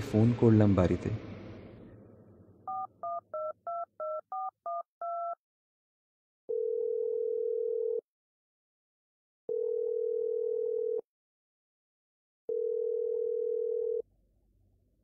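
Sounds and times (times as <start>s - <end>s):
keypad beeps: 2.7s - 5.4s
phone ringing tone: 2.7s - 5.4s, 6.5s - 8.0s, 9.5s - 11.0s, 12.5s - 14.0s.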